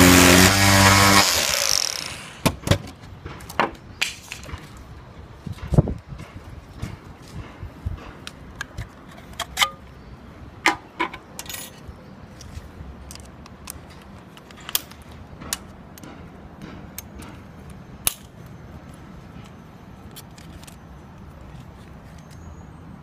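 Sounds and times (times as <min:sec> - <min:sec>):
metallic clicks of tools handled: 0:11.0 - 0:18.4.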